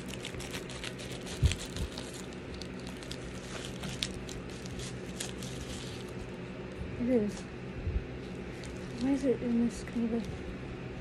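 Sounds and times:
scissors snipping plastic: 0:00.0 - 0:05.9
plastic mailer crinkling: 0:00.0 - 0:06.4, 0:08.4 - 0:10.3.

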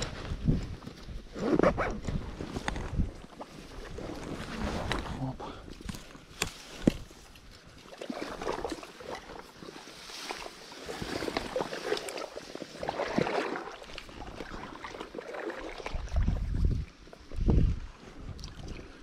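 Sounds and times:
water sloshing around legs: 0:05.8 - 0:19.0.

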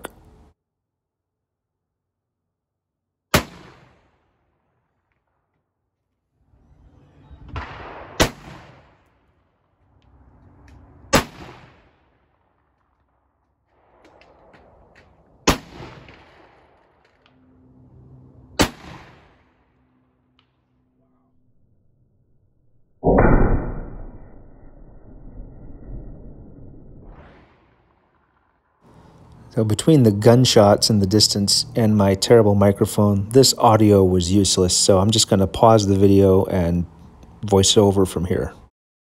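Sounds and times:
rifle shots with echo: 0:03.3 - 0:04.2, 0:07.5 - 0:09.2, 0:11.1 - 0:17.8, 0:18.6 - 0:19.6.

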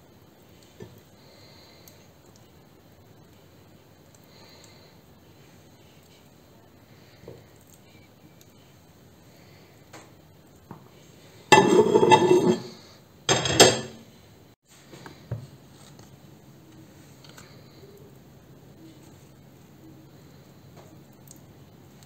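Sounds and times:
dishes and utensils clattering: 0:11.5 - 0:14.0.

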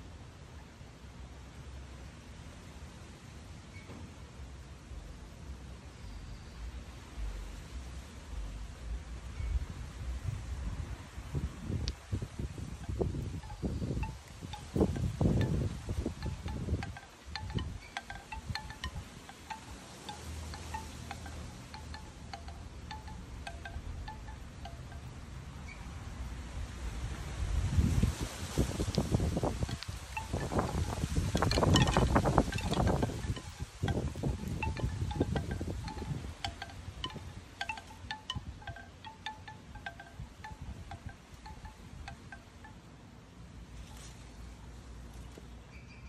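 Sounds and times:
wind rumbling on microphone: 0:07.0 - 0:42.7
bamboo wind chime knocking: 0:12.7 - 0:25.9, 0:28.9 - 0:42.9.

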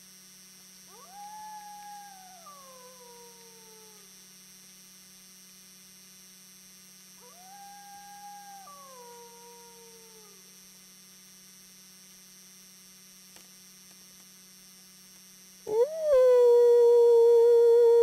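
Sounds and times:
wolf howling: 0:00.9 - 0:04.1, 0:07.3 - 0:10.4, 0:15.7 - 0:18.0
steady low hum: 0:15.6 - 0:18.0.

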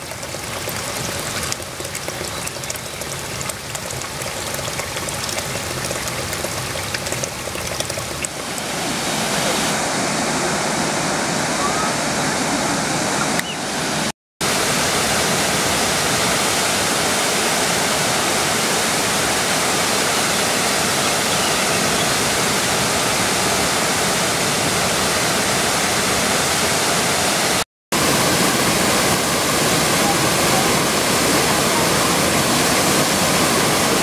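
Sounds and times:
waterfall rushing: 0:08.2 - 0:34.0.

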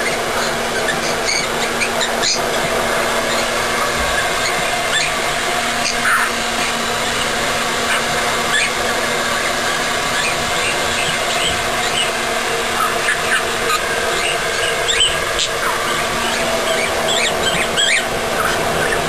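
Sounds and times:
budgerigar chirping and warbling: 0:00.0 - 0:02.6, 0:05.8 - 0:06.4, 0:10.1 - 0:12.1, 0:12.8 - 0:19.0
hair dryer blowing air: 0:00.0 - 0:19.0.

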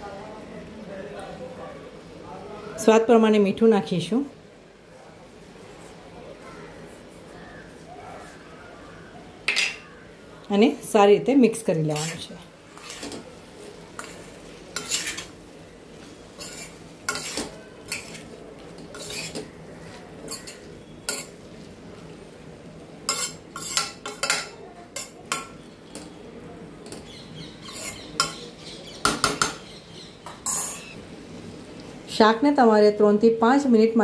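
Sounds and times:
low sizzle from pan: 0:00.0 - 0:34.0
metal spoon scraping a pan: 0:11.6 - 0:15.4, 0:16.0 - 0:21.5, 0:23.0 - 0:26.2, 0:26.8 - 0:29.6, 0:30.2 - 0:31.0.

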